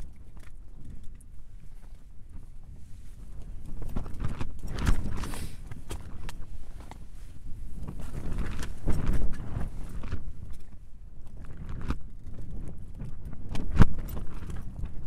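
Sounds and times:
wind buffeting tent: 0:00.0 - 0:15.0.

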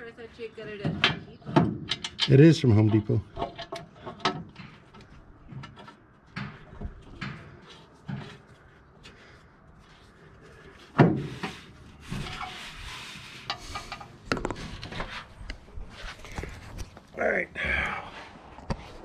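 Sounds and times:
metal knocks and clunks: 0:00.8 - 0:08.4
scraping and rustling: 0:06.9 - 0:17.1.

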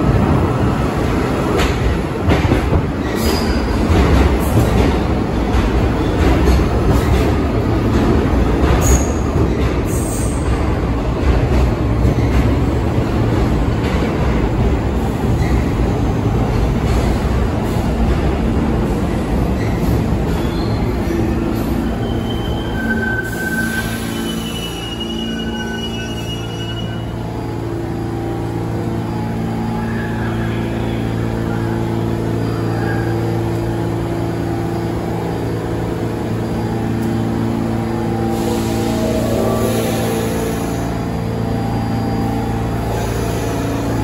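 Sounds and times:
subway train wheels rumbling: 0:00.0 - 0:44.0
high wheel squeals: 0:19.6 - 0:27.2.

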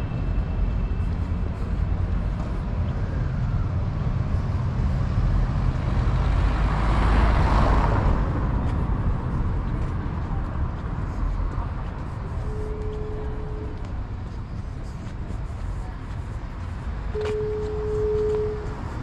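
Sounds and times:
traffic rumble: 0:00.0 - 0:19.0
vehicle passing close by: 0:04.6 - 0:10.7.

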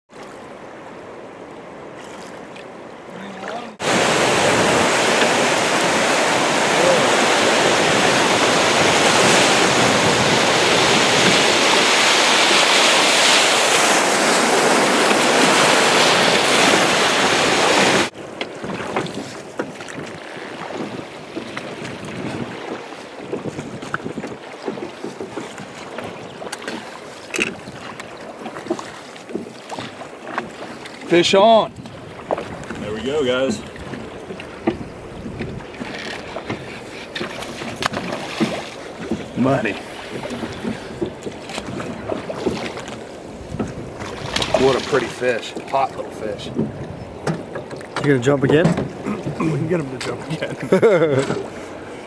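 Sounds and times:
small knocks and splashes: 0:01.9 - 0:02.7, 0:18.4 - 0:32.8, 0:33.4 - 0:50.4
rushing river rapids: 0:03.0 - 0:18.4.

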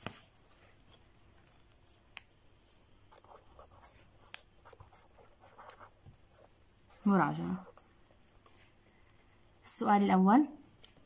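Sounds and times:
marker scratching on paper: 0:03.1 - 0:08.8.

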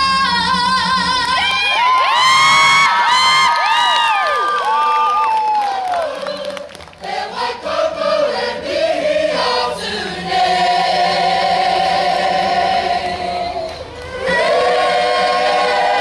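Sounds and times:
choir singing in harmony: 0:06.0 - 0:16.0.

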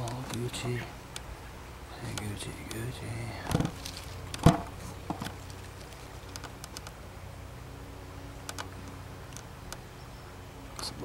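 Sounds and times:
faint steady hum: 0:00.0 - 0:11.0
sharp clicks and snaps: 0:05.2 - 0:07.0, 0:08.4 - 0:09.8.

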